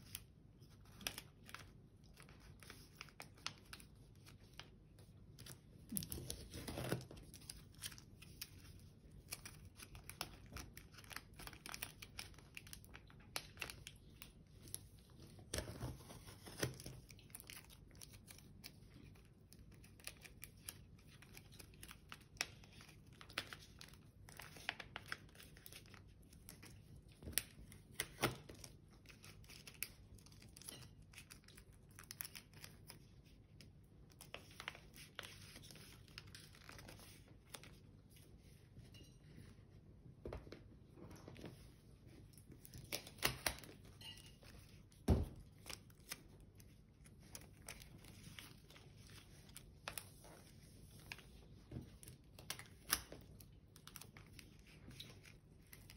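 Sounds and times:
paper crinkling and rustling: 0.0 - 39.7, 40.5 - 55.9.

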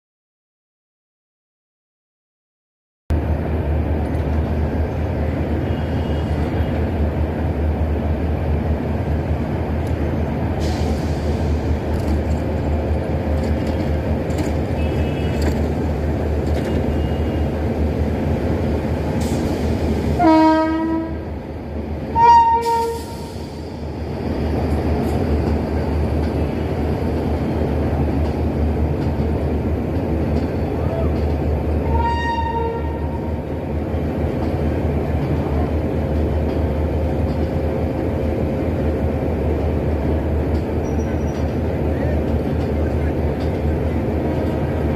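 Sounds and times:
train wheels rumbling on rails: 3.1 - 44.9
locomotive air horn blasts: 14.8 - 15.4, 20.2 - 21.3, 22.1 - 23.3, 31.8 - 33.4.

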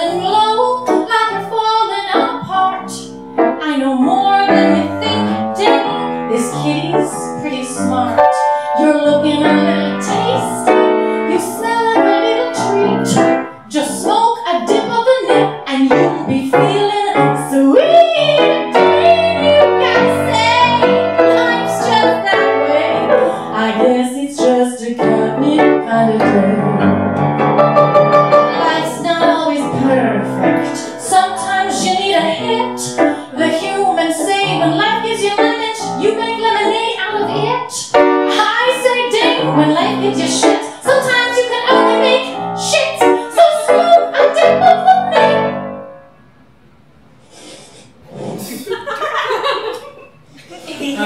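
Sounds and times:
woman singing: 0.0 - 27.1, 28.5 - 45.6
piano accompaniment: 0.0 - 46.8.

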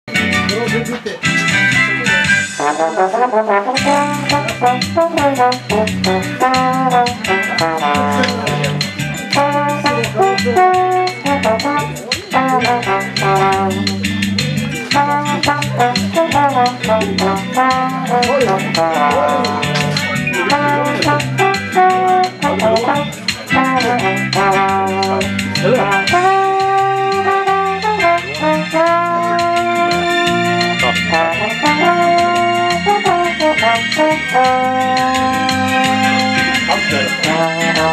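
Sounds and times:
drums and bass backing track: 0.1 - 37.9
trombone melody: 1.4 - 37.9.

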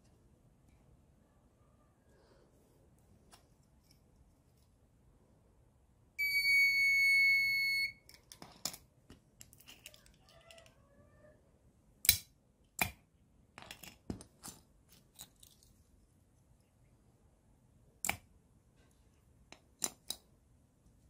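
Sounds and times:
buzzer high beep: 6.2 - 8.0.

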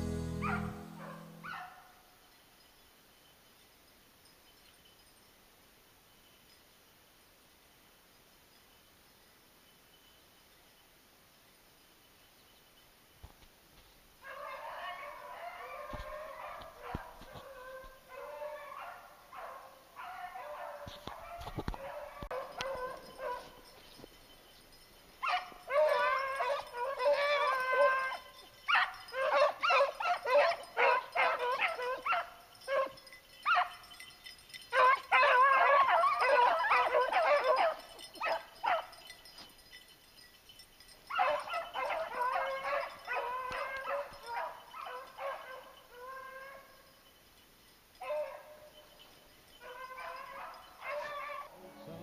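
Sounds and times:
hounds baying: 0.0 - 1.9, 14.2 - 40.3, 41.0 - 47.0, 48.0 - 52.0.

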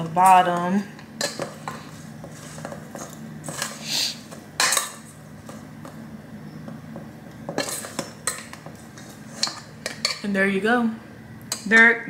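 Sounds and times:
metal spoon scraping steel bowl: 7.6 - 10.2.

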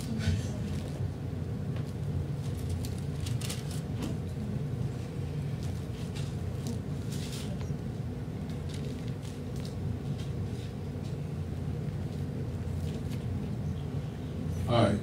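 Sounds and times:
low room hum: 0.0 - 15.0
paper pages rustling: 1.8 - 3.9, 8.5 - 10.8.

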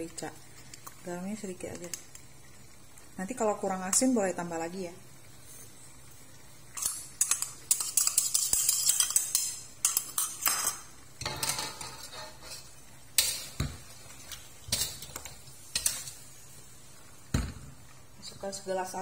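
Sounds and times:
metal spoon scraping a wok: 6.8 - 13.6.

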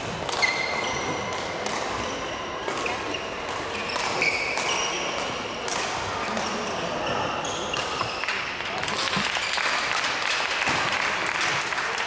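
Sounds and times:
rackets hitting shuttlecock: 0.0 - 6.6
shoes squeaking on court: 0.3 - 5.6, 6.2 - 9.4.

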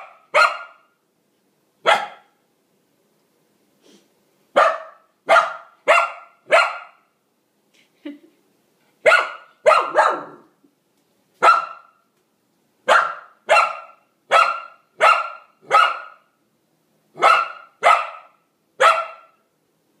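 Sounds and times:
young dog barking: 0.0 - 0.9, 1.8 - 2.4, 4.6 - 7.1, 9.0 - 10.5, 11.4 - 12.0, 12.8 - 16.3, 17.2 - 19.4.

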